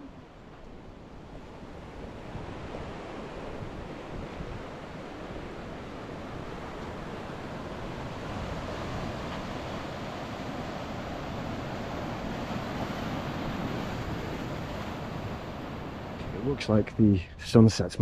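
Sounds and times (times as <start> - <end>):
ocean waves breaking on rocks: 0.0 - 16.8.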